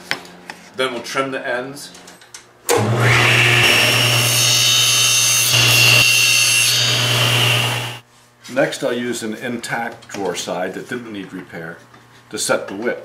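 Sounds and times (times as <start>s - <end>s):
table saw cutting wood: 2.7s - 8.0s.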